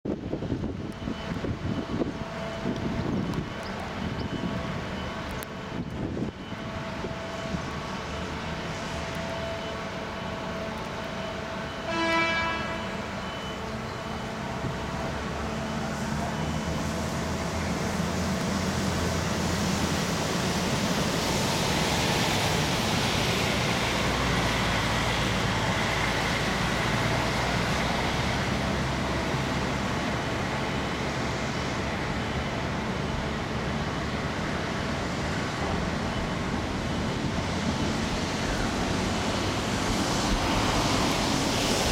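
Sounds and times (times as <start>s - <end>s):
short horn toot: 11.8s - 13.1s.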